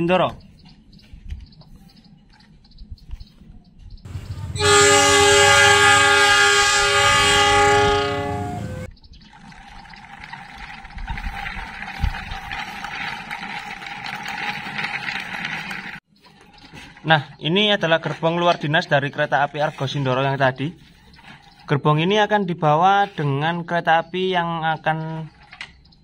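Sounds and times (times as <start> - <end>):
train horn blast: 4.1 - 8.9.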